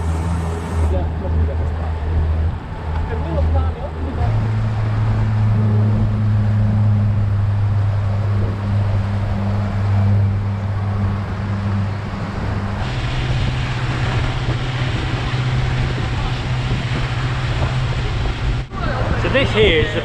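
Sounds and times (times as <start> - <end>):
motorboat engine humming: 0.0 - 20.0
rushing hiss of churning wake: 11.3 - 20.0.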